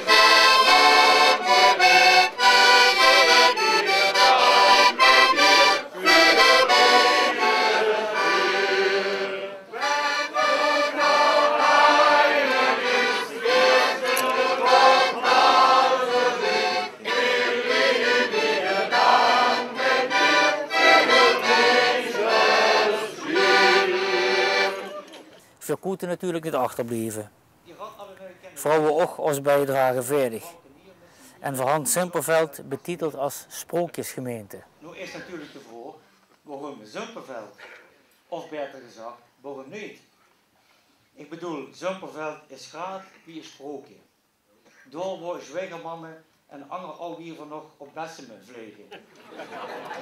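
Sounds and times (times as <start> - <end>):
piano accordion playing: 0.0 - 24.9.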